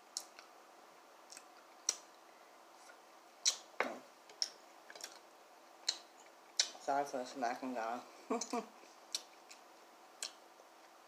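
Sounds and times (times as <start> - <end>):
mouth smacking while chewing: 4.3 - 6.8, 9.1 - 10.4.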